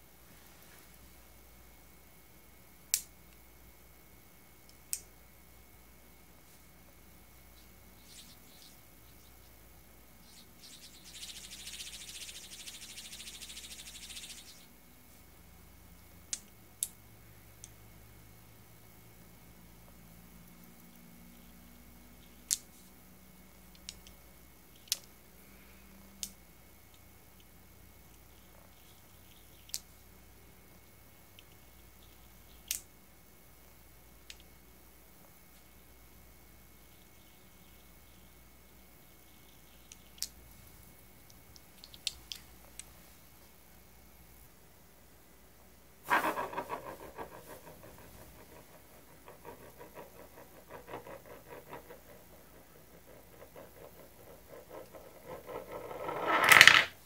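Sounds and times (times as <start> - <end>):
spinning top ticking on countertop: 46.1 - 56.9.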